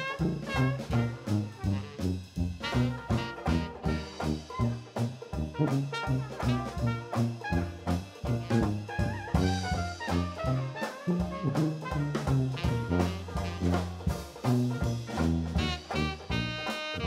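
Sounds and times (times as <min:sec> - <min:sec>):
drum kit: 0:00.0 - 0:17.0
trumpet melody: 0:00.0 - 0:17.0
sousaphone bass line: 0:07.4 - 0:16.6.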